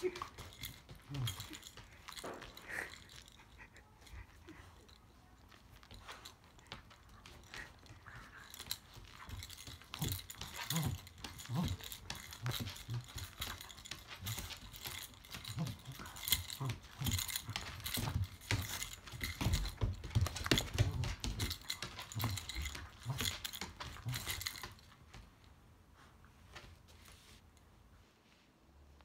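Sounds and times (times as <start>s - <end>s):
dog claws scrabbling on hard floor: 5.5s - 25.1s.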